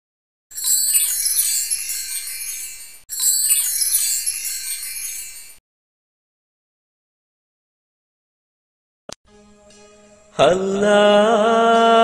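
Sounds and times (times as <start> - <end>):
high shimmering chime effect: 0.5 - 5.6.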